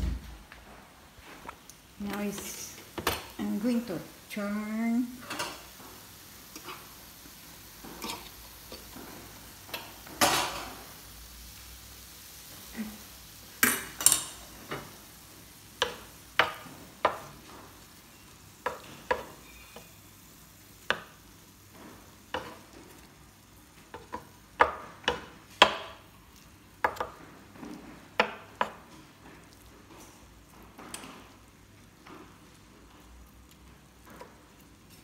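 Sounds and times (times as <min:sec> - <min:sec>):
spatula scraping grill plate: 0:06.5 - 0:07.0, 0:07.8 - 0:10.5.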